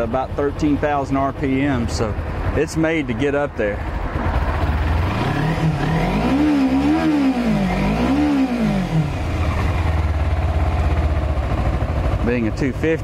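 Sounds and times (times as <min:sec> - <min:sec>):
motorcycle engine idling and revving: 0:00.0 - 0:13.0.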